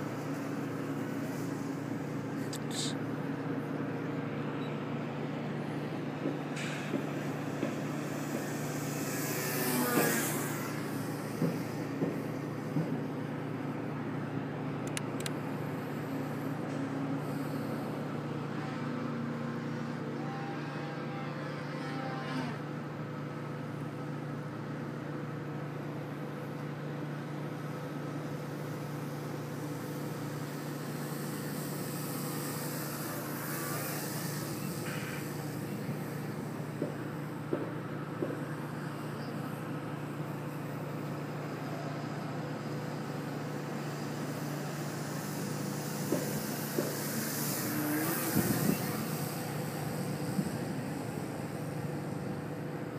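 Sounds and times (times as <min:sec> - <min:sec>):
electric model plane motor buzzing: 0:07.0 - 0:12.4, 0:19.9 - 0:22.7, 0:29.9 - 0:37.4, 0:42.9 - 0:52.7.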